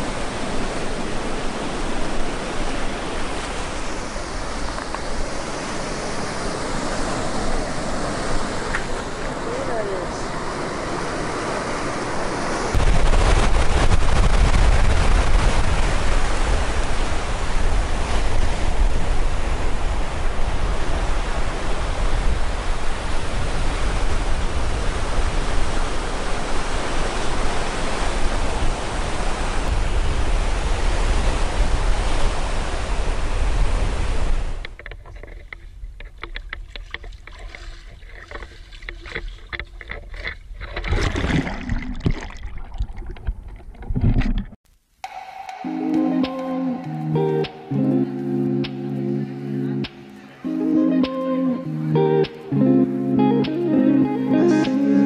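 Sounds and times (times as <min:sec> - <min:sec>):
water splashing and sloshing: 0:00.0 - 0:19.7, 0:34.5 - 0:44.7
surf rushing over rocks: 0:00.0 - 0:35.5, 0:36.2 - 0:44.6.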